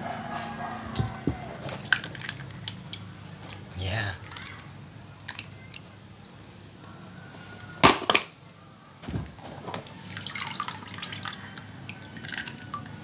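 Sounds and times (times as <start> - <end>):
water sloshing and dripping: 1.0 - 4.6, 9.4 - 13.0.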